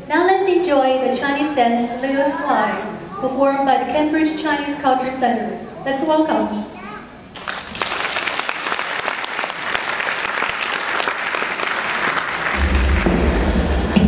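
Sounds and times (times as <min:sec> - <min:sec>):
audience applauding: 0:07.3 - 0:14.0.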